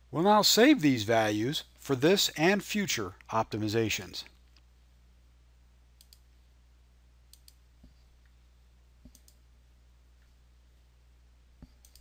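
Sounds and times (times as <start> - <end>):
faint steady hum: 0.0 - 12.0
computer mouse clicking: 6.0 - 6.2, 7.3 - 7.6, 9.0 - 9.4, 11.6 - 12.0.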